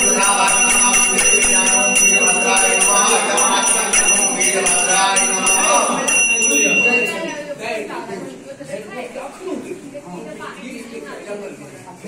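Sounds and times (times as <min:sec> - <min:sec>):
brass hand bell ringing: 0:00.0 - 0:07.5.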